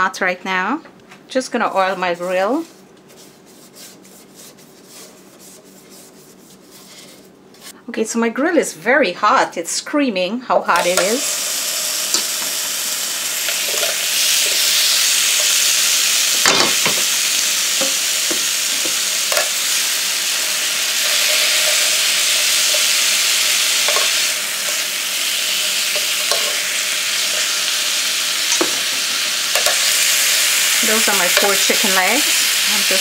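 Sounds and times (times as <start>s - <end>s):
chicken sizzling on a grill: 10.8s - 33.0s.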